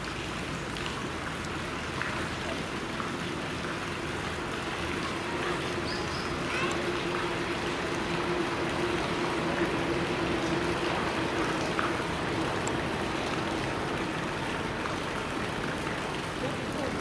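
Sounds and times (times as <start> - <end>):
steady hum: 3.4 - 16.4.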